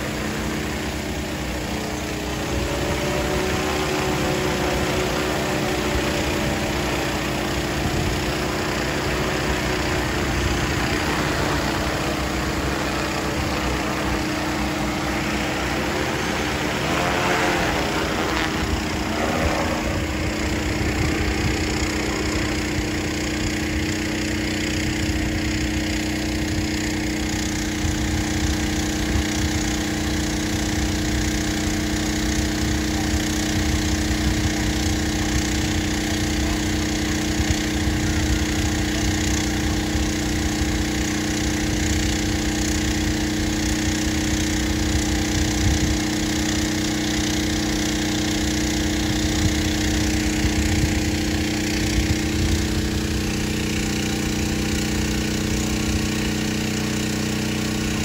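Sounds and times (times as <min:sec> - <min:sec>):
machine hum: 0:00.0 - 0:29.4.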